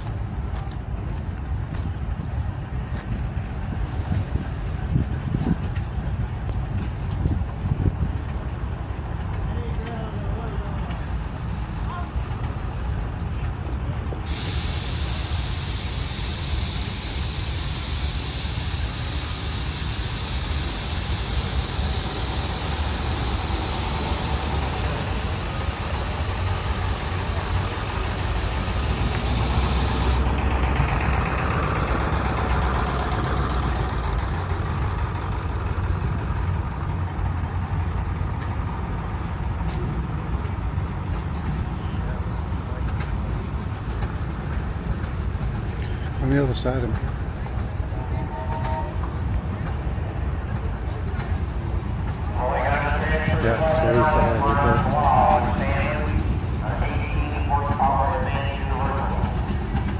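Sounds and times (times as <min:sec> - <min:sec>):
low rumble of engines: 0:00.0 - 0:59.9
high hiss of pressure venting: 0:11.0 - 0:12.5, 0:14.3 - 0:30.3.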